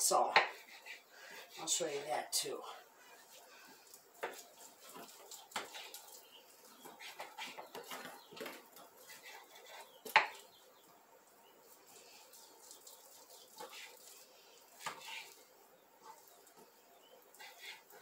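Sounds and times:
knife cutting meat on wooden board: 0:04.2 - 0:05.9, 0:06.8 - 0:10.4, 0:14.8 - 0:15.4, 0:17.3 - 0:18.0.

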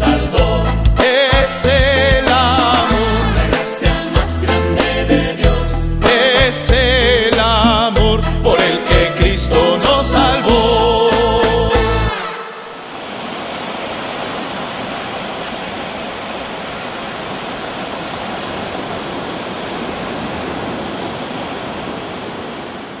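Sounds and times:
ocean surf rushing: 0:10.4 - 0:23.0.

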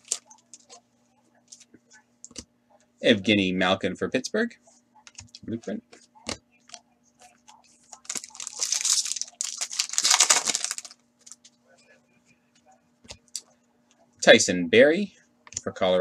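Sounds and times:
foil pack tearing and crinkling: 0:08.0 - 0:11.0.

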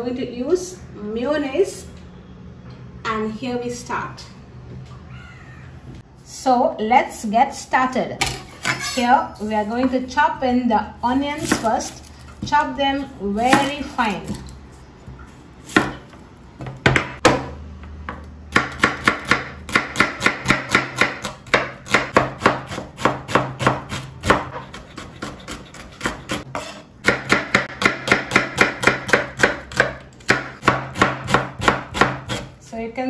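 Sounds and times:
knife chopping on wooden board: 0:18.1 - 0:32.5.

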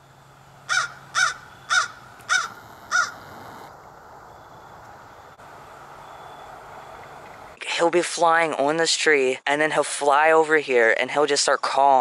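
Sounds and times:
crow cawing: 0:00.7 - 0:03.4.

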